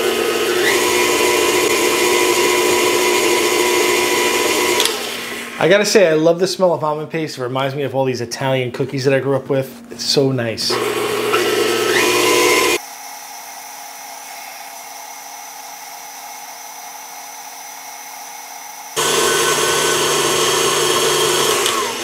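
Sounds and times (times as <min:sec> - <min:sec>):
stand mixer running: 0:00.0 - 0:05.5, 0:10.7 - 0:22.0.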